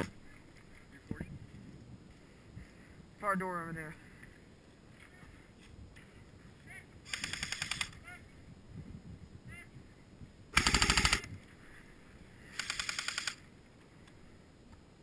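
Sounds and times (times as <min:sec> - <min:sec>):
airsoft rifle bursts: 0:07.1 - 0:08.0, 0:10.6 - 0:11.3, 0:12.5 - 0:13.4.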